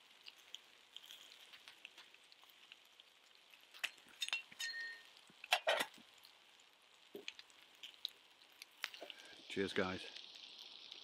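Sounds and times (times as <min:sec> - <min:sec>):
bacon sizzling in a pan: 0:00.0 - 0:11.0
metal cookware clinking: 0:03.8 - 0:06.0.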